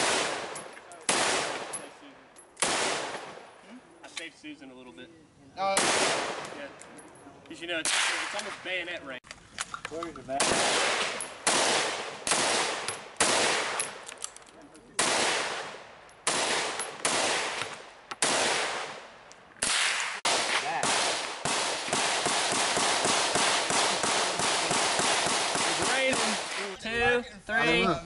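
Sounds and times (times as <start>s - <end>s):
rifle shots with echo: 0.0s - 2.0s, 2.6s - 3.5s, 5.7s - 6.7s, 7.8s - 8.6s, 10.4s - 14.0s, 15.0s - 26.7s.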